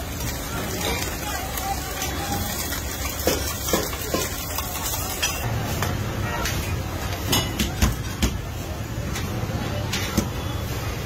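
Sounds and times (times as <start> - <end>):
food sizzling on a griddle: 0.0 - 6.7
metal spatula clicking and scraping: 1.9 - 5.5.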